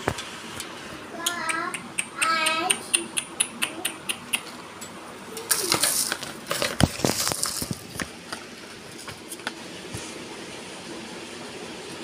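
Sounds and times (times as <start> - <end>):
sharp clicks on wire cage: 1.2 - 6.2.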